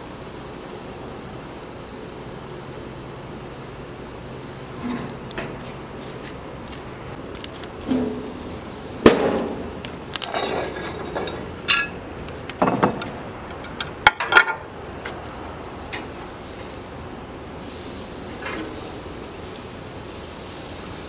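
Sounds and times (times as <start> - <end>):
metal tongs clinking on grill: 10.2 - 12.0
meat sizzling: 14.8 - 21.0.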